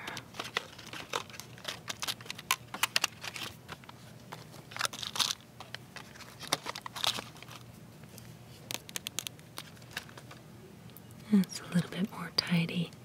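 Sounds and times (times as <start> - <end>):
plastic wrap crinkling: 0.0 - 7.8, 8.5 - 10.4.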